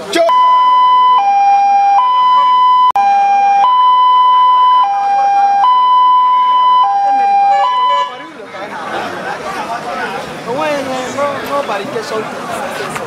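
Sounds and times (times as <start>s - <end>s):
two-tone emergency siren: 0.3s - 8.2s.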